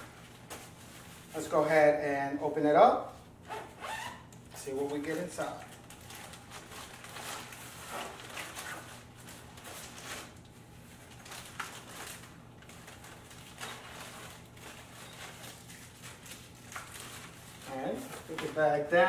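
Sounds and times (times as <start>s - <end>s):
plastic rustling: 3.8s - 19.0s.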